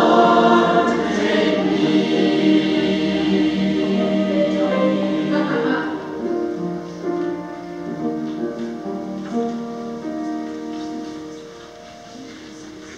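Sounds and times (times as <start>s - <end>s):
choir holding a note: 0.0s - 7.2s
piano chords: 0.0s - 12.9s.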